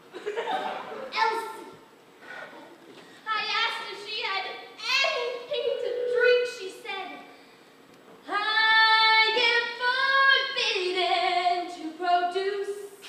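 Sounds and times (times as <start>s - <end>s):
woman singing: 5.5s - 6.6s, 8.3s - 13.0s.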